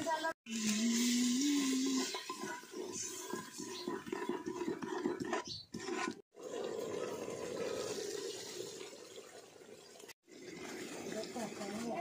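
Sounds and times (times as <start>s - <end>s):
spoon scraping a metal pot: 1.8s - 6.2s.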